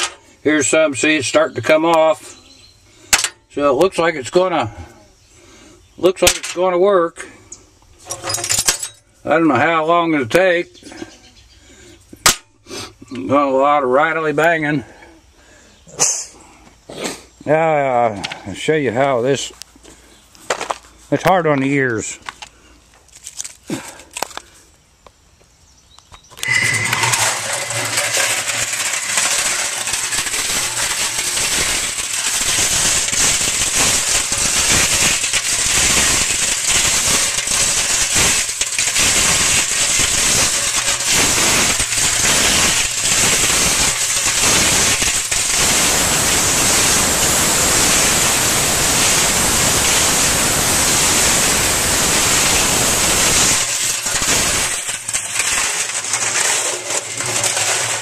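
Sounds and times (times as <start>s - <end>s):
mixer drum rattling metal: 0.0s - 0.2s, 8.0s - 9.0s, 26.4s - 58.0s.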